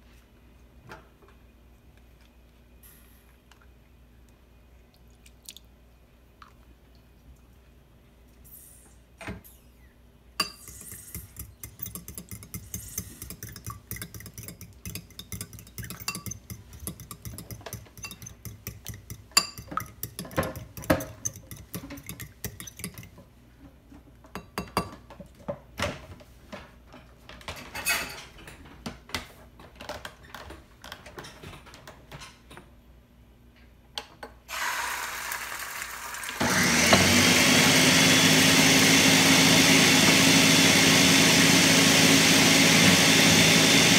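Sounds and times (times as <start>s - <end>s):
fork beating egg in bowl: 10.4s - 23.2s
egg hissing in hot pan: 34.5s - 36.4s.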